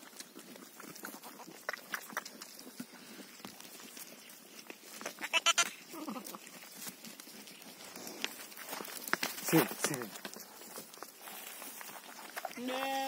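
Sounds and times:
rustling in dry grass: 0.0 - 13.0.

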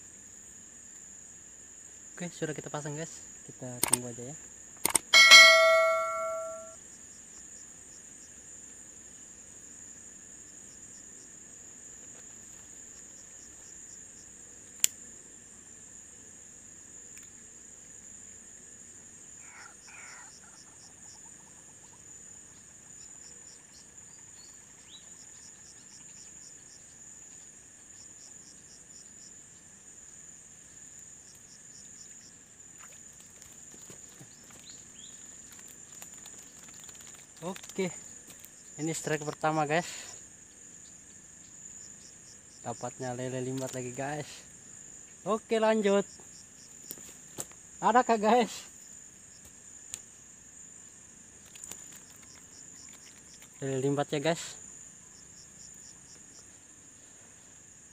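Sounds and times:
high-pitched insect chorus trilling: 0.0 - 57.9
sharp click: 3.8 - 4.0, 4.8 - 6.7.

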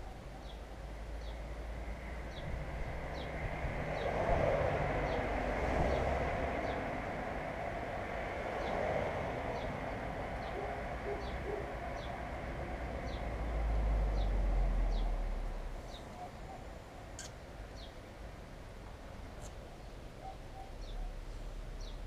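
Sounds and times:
small bird chirping: 15.9 - 18.0.

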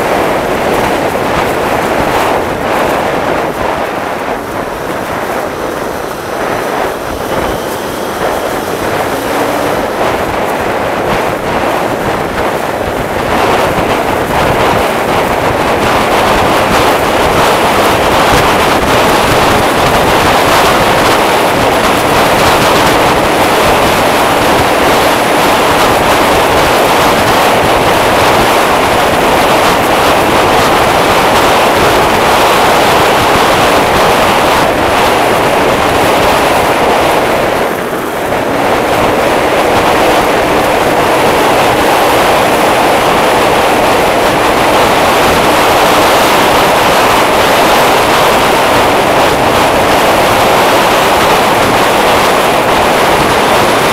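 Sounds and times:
scooter engine running: 0.0 - 53.9
wind rushing over microphone: 0.0 - 53.9.

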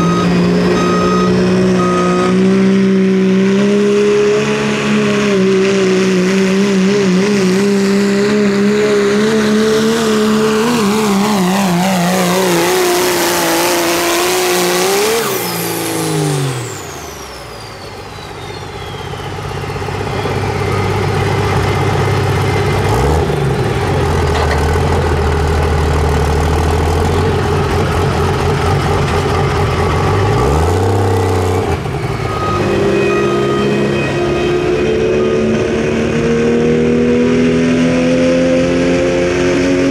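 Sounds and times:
turbo whistle: 0.0 - 2.6, 16.6 - 21.0, 32.0 - 36.3
pickup truck engine at full throttle: 0.0 - 39.9.

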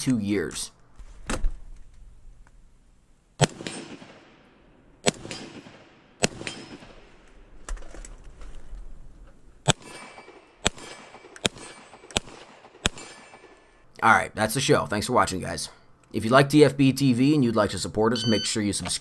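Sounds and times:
faint gunshot: 3.4 - 7.2
gunshots with echo: 3.4 - 7.2, 9.6 - 13.7.

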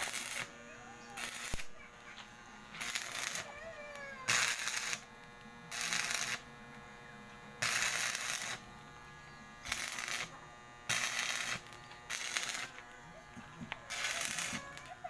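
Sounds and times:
welder steady hum: 0.0 - 15.0
welding arc crackling and hissing: 0.0 - 15.0.

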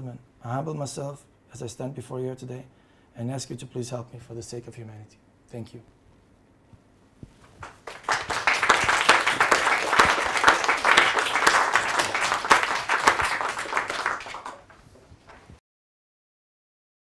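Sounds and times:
audience applauding: 7.6 - 14.8.

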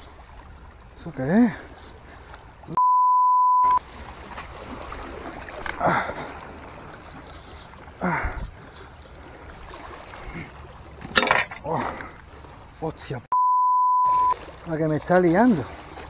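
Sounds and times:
censor bleep tone: 2.8 - 3.8, 13.3 - 14.4.

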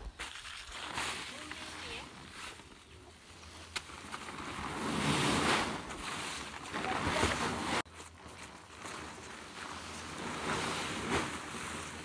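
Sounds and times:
plastic tarp rustling: 0.1 - 12.0.

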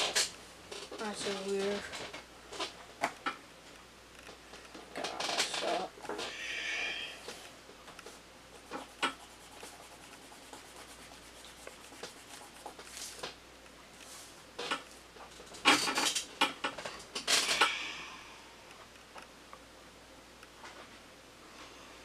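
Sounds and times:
pen scratching on paper: 8.6 - 13.1
hand rubbing on paper: 8.6 - 13.2.

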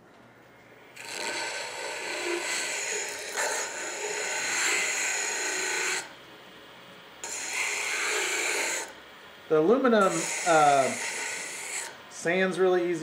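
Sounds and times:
wood rasping on sanding disc: 1.0 - 6.1, 7.2 - 8.9, 10.0 - 12.0.

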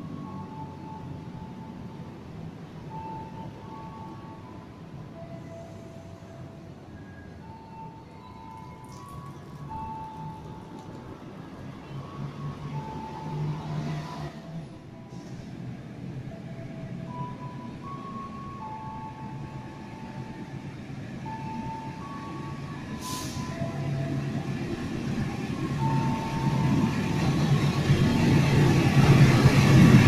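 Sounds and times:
diesel locomotive rumble: 0.0 - 30.0
slow tune of clear tones: 2.9 - 11.0.

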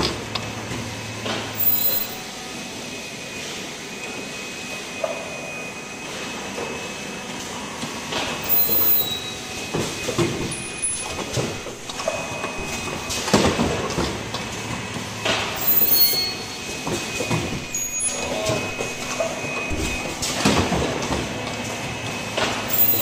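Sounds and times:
machine high whine: 0.0 - 23.0
pneumatic air bursts: 1.6 - 2.2, 8.4 - 9.4, 15.6 - 16.6, 22.7 - 23.0.

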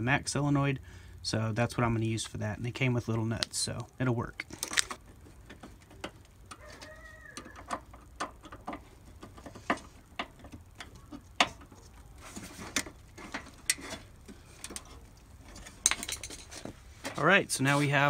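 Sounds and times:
small metallic clicks and taps: 3.4 - 11.9.

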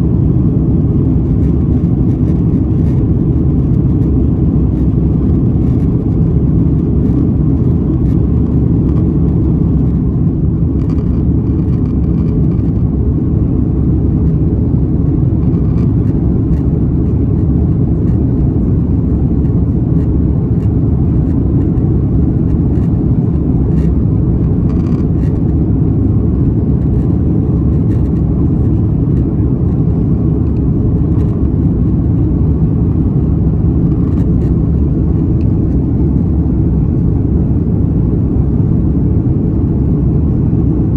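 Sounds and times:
aircraft cabin engine rumble: 0.0 - 40.9
faint clicks and rattles: 10.8 - 12.8, 24.7 - 25.6, 26.8 - 28.8.

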